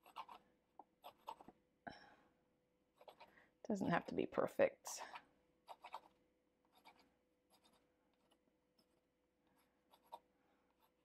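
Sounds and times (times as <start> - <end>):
pencil scratching on canvas: 0.0 - 1.5, 3.0 - 3.3, 5.1 - 9.0, 9.6 - 11.0.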